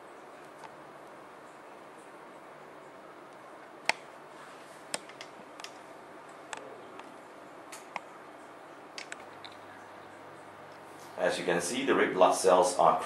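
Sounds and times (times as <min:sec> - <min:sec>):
steady low hiss: 0:00.0 - 0:13.0
light clicks and taps: 0:09.0 - 0:09.6.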